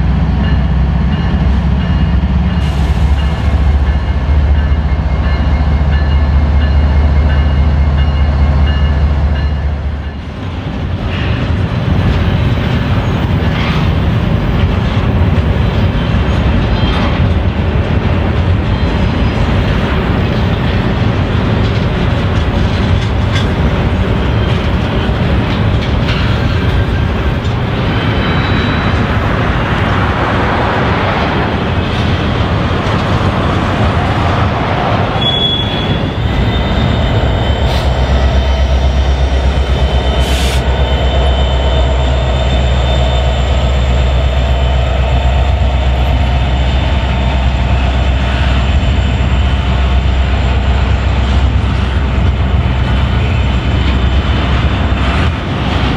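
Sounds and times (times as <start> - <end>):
diesel locomotive engine rumble: 0.0 - 55.9
train wheels on rails: 0.0 - 55.9
wheel squeal: 27.9 - 29.1, 35.2 - 44.8.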